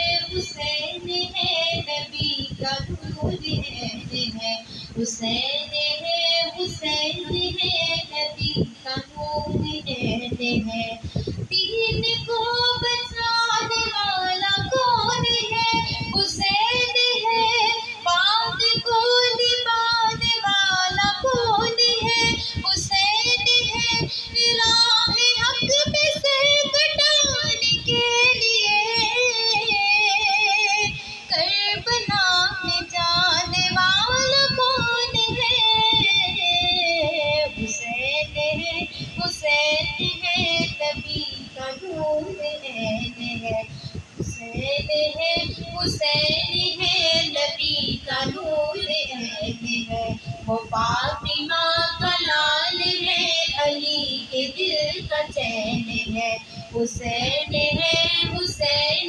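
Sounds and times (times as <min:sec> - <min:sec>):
high voice singing devotional song: 0:00.0 - 0:59.0.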